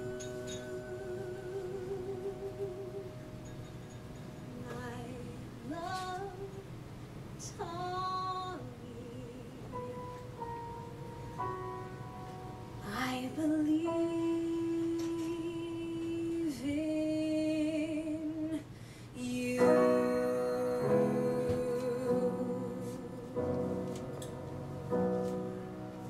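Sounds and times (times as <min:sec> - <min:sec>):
woman singing a ballad: 0:00.0 - 0:03.5, 0:04.5 - 0:06.8, 0:07.4 - 0:10.1, 0:12.8 - 0:24.2
piano accompaniment: 0:00.0 - 0:18.5, 0:19.2 - 0:26.0.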